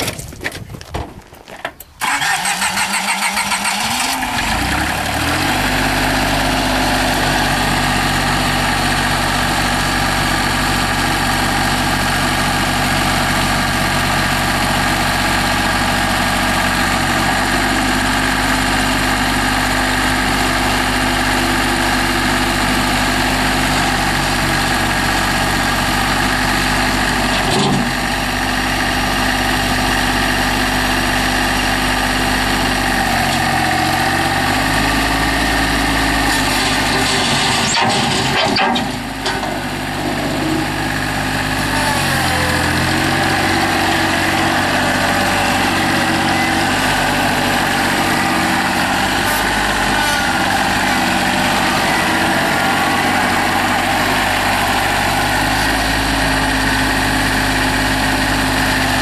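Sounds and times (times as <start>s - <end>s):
tractor engine idling: 1.7s - 59.0s
diesel engine starter cranking: 1.8s - 5.3s.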